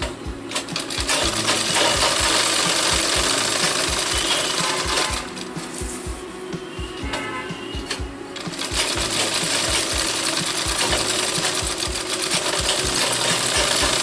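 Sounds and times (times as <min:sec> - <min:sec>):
sewing machine stitching: 0:00.0 - 0:05.5, 0:08.4 - 0:14.0.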